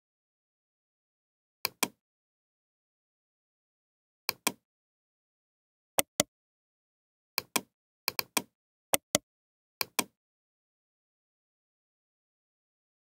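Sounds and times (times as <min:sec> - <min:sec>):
computer mouse button clicks: 0:04.3 - 0:04.6, 0:06.0 - 0:06.3, 0:07.4 - 0:09.2, 0:09.8 - 0:10.2.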